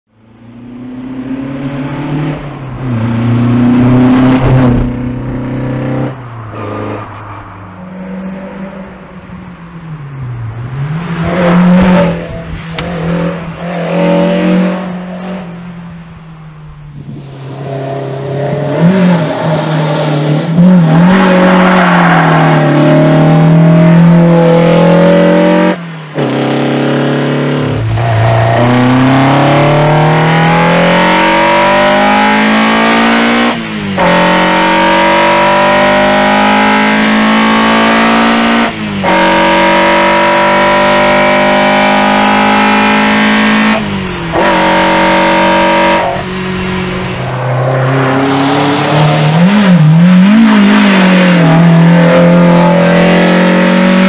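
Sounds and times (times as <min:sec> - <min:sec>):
car engine revving hard: 0:17.0 - 0:54.0.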